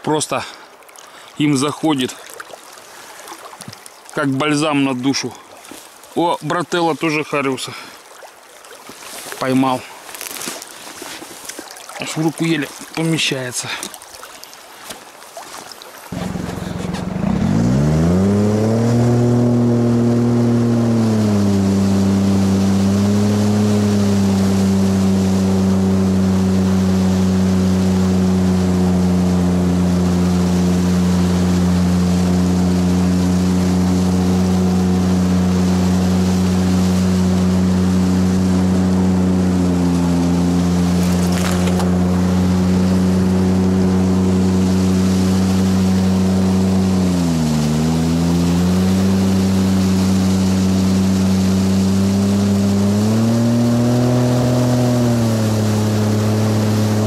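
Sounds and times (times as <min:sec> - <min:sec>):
outboard motor running: 0:15.6 - 0:57.0.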